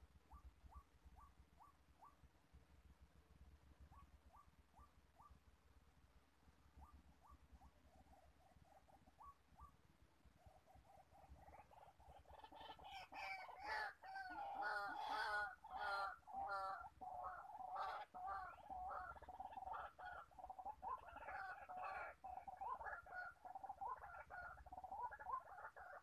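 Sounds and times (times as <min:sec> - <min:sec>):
waterhen calling repeated notes: 0:10.4 - 0:26.0.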